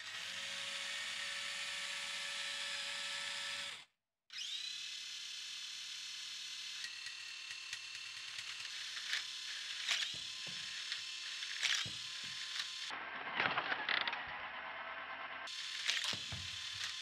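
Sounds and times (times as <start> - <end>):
plastic gears clicking and ratcheting: 6.4 - 14.3, 15.5 - 17.0.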